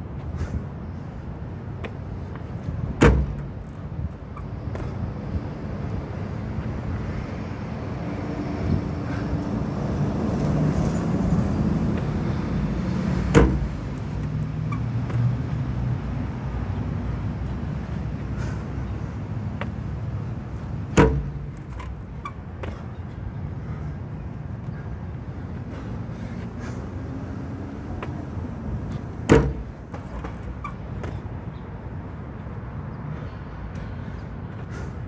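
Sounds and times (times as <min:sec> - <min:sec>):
road traffic: 0:00.0 - 0:35.0
vehicle engine: 0:00.9 - 0:35.0
sharp thuds of landings: 0:01.8 - 0:05.0, 0:13.0 - 0:15.3, 0:20.6 - 0:23.0, 0:29.0 - 0:31.2.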